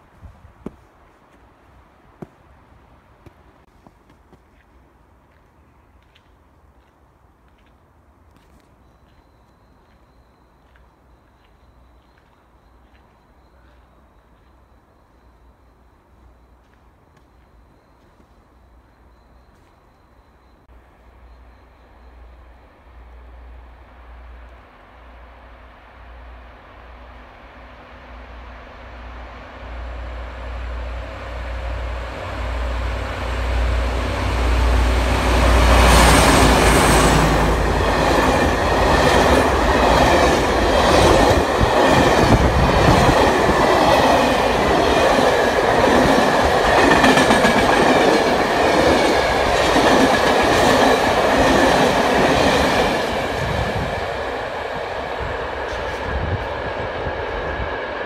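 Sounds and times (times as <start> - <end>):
train wheels clickety-clack: 36.0 - 53.9.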